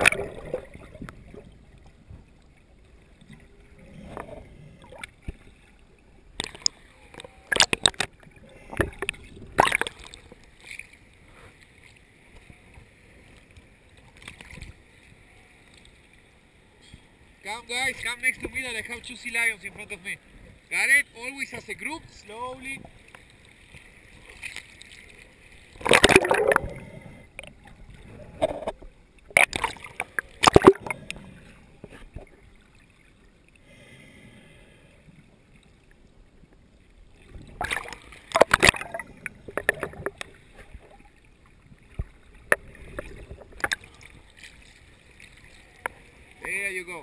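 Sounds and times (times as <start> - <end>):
seawater splashing against camera: 0.0 - 2.3, 6.4 - 12.6, 22.6 - 33.1, 37.2 - 41.2, 41.8 - 46.5.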